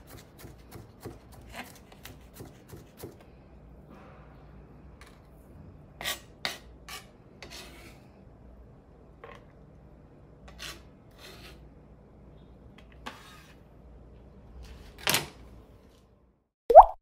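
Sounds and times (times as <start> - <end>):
knife scraping cutting board: 0.0 - 3.2, 6.0 - 8.1, 10.5 - 11.8, 12.8 - 13.7.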